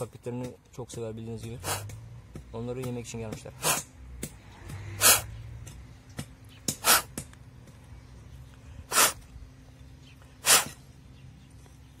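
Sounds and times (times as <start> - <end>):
person puffing breath: 1.6 - 1.9, 3.6 - 3.9, 4.9 - 5.3, 6.8 - 7.2, 8.7 - 9.2, 10.4 - 10.8.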